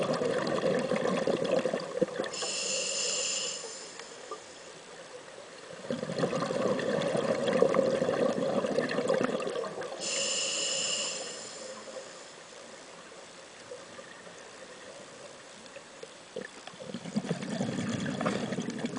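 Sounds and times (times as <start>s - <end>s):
exhaled bubbles underwater: 0.0s - 2.4s, 5.7s - 10.2s, 16.4s - 18.9s
regulator inhale hiss: 2.3s - 4.8s, 10.0s - 12.7s.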